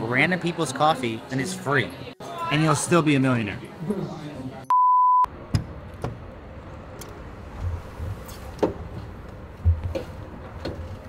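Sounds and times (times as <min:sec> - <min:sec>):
truck rumble: 0:05.3 - 0:11.0.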